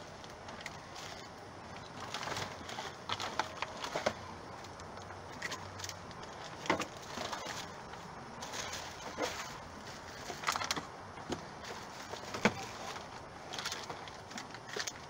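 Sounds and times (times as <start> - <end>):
plastic packaging crinkling: 0.5 - 10.9.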